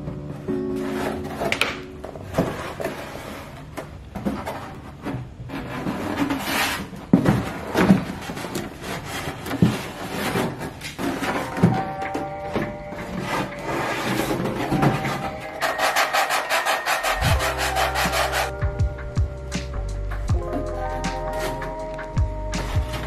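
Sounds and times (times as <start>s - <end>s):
foam board handling noise: 0.5s - 18.6s.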